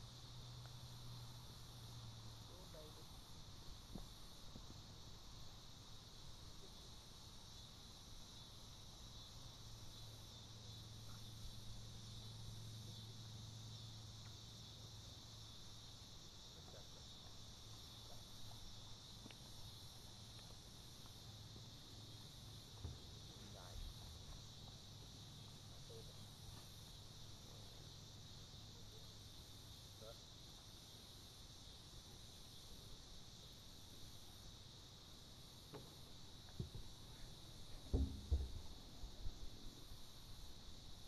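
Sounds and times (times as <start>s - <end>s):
faint low hum: 0.0s - 41.0s
insects chirring in grass: 0.0s - 41.0s.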